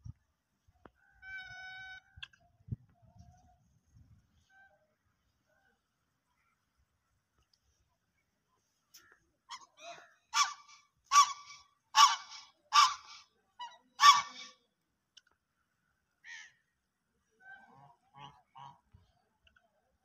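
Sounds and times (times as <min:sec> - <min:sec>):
geese honking: 0:09.5 - 0:14.6.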